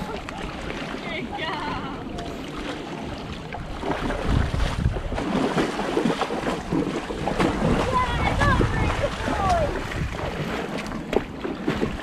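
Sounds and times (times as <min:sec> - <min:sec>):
water splashing around wading ponies: 0:00.0 - 0:12.0
wind buffeting microphone: 0:03.1 - 0:12.0.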